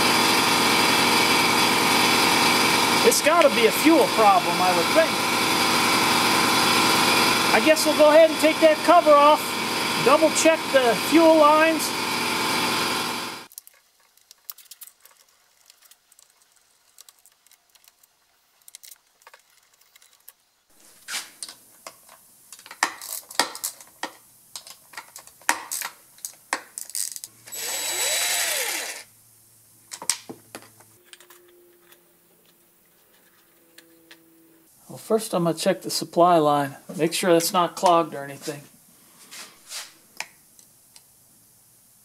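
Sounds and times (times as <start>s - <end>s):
cordless drill running: 0.0s - 13.5s, 27.4s - 29.1s.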